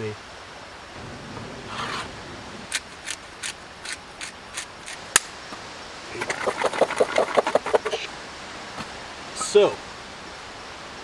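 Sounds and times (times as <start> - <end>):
light sharp ticks: 2.7 - 5.4
potato cubes rattling in metal pot: 6.1 - 7.9.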